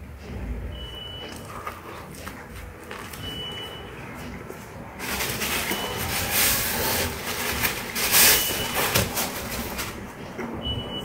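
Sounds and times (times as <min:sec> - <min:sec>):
paper napkin rustling and crumpling: 0:04.6 - 0:10.2.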